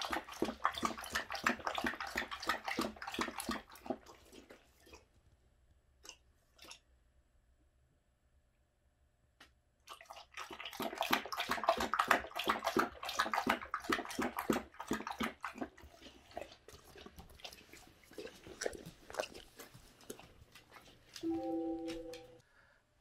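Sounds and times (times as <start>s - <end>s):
dog licking a metal bowl: 0.0s - 5.1s, 9.9s - 21.3s.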